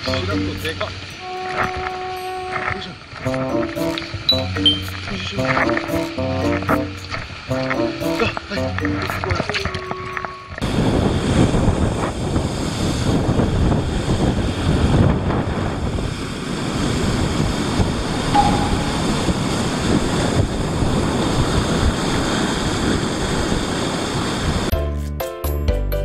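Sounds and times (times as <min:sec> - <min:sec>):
sea surf on rocky shore: 0:00.0 - 0:24.7
wind buffeting microphone: 0:09.7 - 0:24.7.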